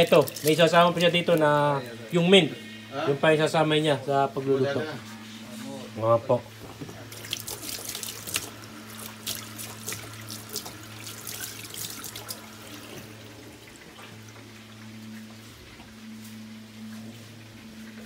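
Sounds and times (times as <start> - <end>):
water splashing in a metal sink: 0.0 - 1.6, 7.1 - 14.4
steady low hum: 0.0 - 18.0.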